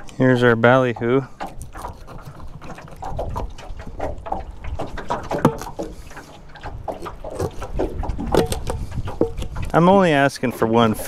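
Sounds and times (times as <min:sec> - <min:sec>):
knife scraping through fish: 0:01.4 - 0:03.5, 0:05.3 - 0:09.8.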